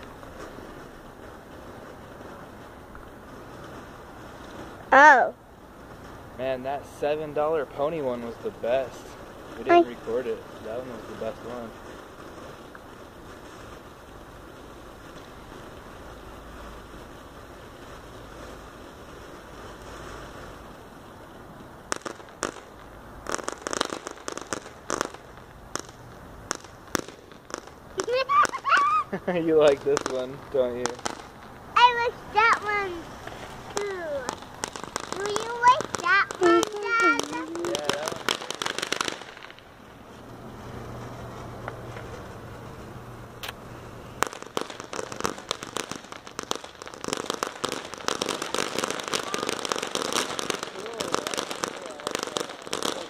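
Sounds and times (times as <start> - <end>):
faint hiss: 0.0 - 53.0
firework crackling and popping: 0.0 - 53.0.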